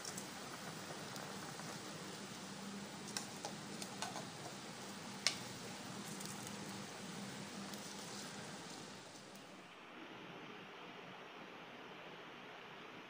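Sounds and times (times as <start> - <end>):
stock boiling in a pot: 0.0 - 9.6
faint hum: 0.0 - 13.0.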